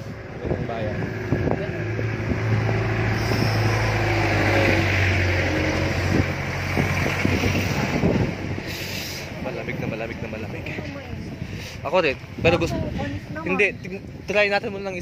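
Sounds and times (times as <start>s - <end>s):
pickup truck engine passing by: 0.0s - 11.4s.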